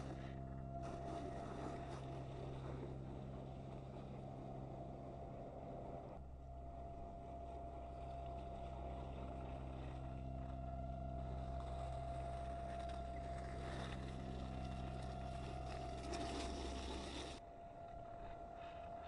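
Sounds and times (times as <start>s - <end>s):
rc car motor whine: 7.4s - 17.5s.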